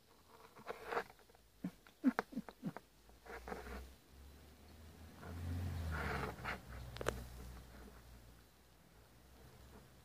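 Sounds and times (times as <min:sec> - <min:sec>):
soft rustle: 0:00.0 - 0:04.0, 0:05.2 - 0:10.0
cat clicking and scraping on plastic: 0:00.1 - 0:03.9, 0:05.2 - 0:08.0.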